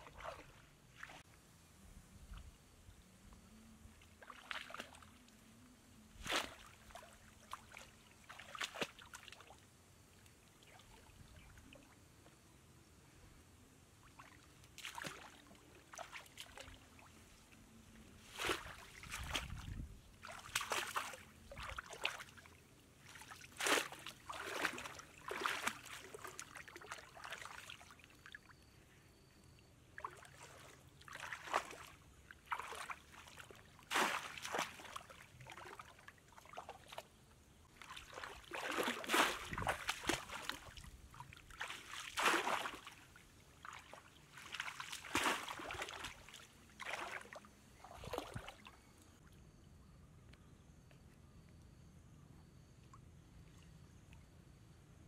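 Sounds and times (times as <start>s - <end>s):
splashing of muddy water: 0.0s - 1.2s, 4.2s - 5.3s, 6.2s - 9.6s, 14.2s - 16.9s, 18.2s - 28.1s, 30.0s - 37.1s, 37.8s - 48.7s.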